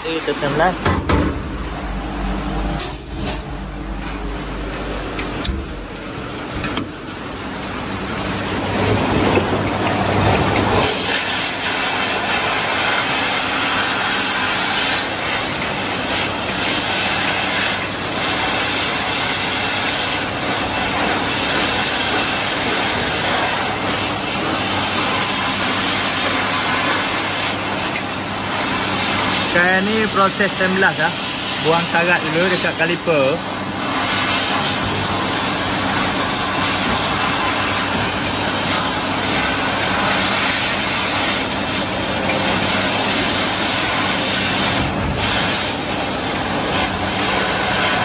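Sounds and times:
sandblast gun hissing: 10.8s - 48.0s.

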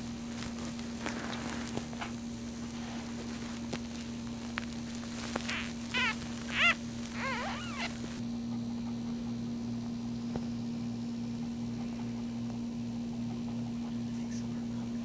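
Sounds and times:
puppy squeaking: 5.2s - 8.2s.

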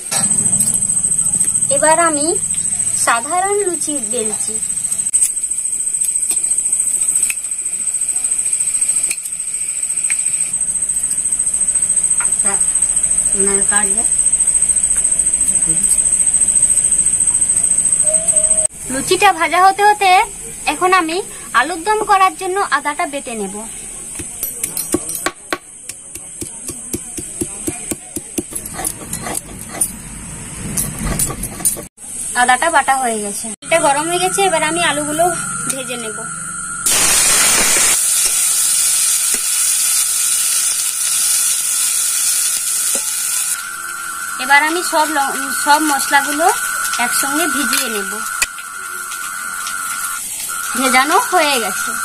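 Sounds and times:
high-pitched insect trill: 0.2s - 18.7s, 30.7s - 52.0s
stone grinding on stone: 27.7s - 30.0s, 30.6s - 31.9s
dough frying in oil: 36.9s - 52.0s.

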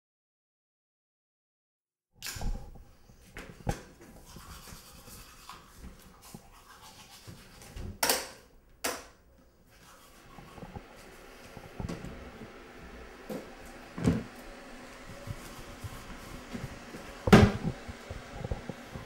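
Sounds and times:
toothbrush scrubbing teeth: 3.7s - 7.8s, 9.7s - 11.8s.

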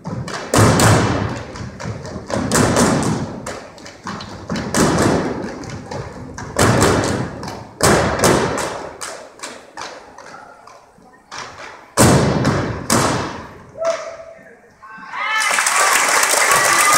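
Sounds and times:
stomping and clapping in unison: 15.4s - 16.9s.

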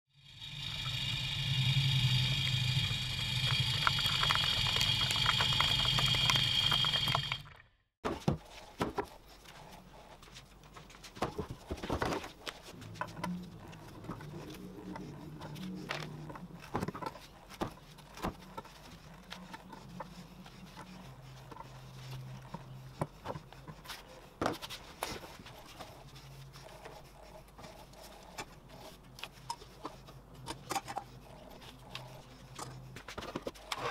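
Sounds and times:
loud whir with high ringing tone: 0.1s - 7.5s.

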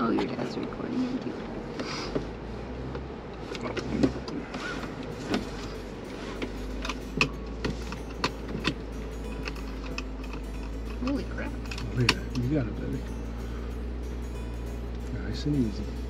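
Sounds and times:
off-road vehicle engine humming: 0.0s - 16.0s.

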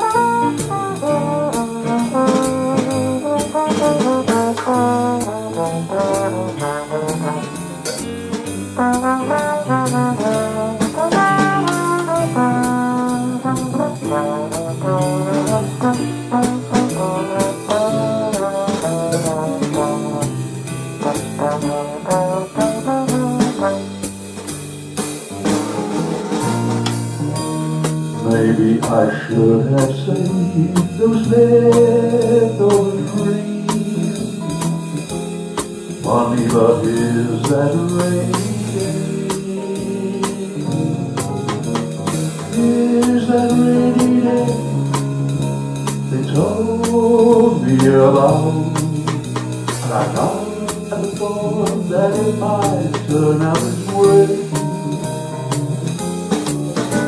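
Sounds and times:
double bass: 0.0s - 57.0s
piano: 0.0s - 57.0s
snare drum: 0.0s - 57.0s
trombone melody: 0.0s - 57.0s
man singing: 28.2s - 34.8s, 36.0s - 41.6s, 42.4s - 45.2s, 46.0s - 56.3s.

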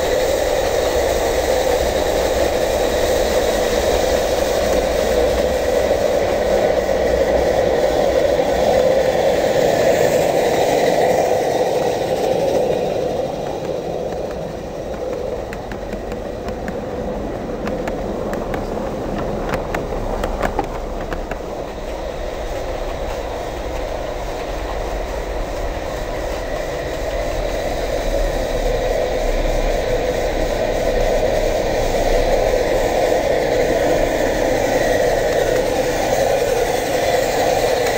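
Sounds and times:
steam locomotive hiss: 0.0s - 37.9s
wheel clicks over rail joints: 9.5s - 27.6s.

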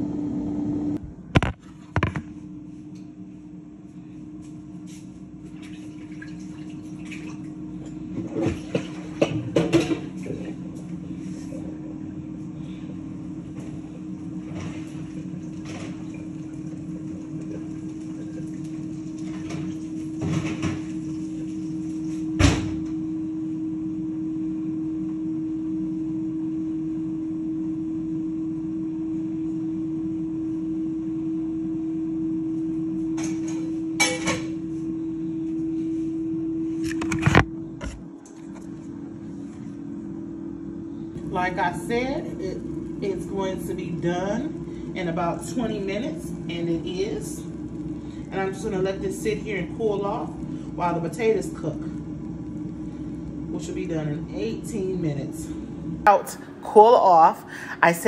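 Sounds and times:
air fryer humming: 0.0s - 58.0s
phone handling noise: 1.3s - 2.2s.

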